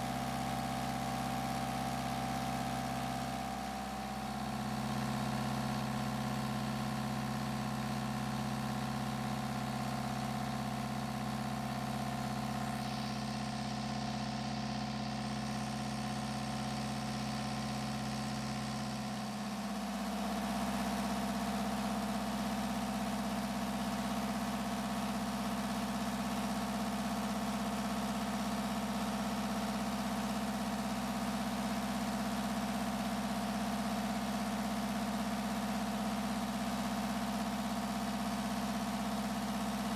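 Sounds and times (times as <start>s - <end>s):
diesel engine idling: 0.0s - 19.9s.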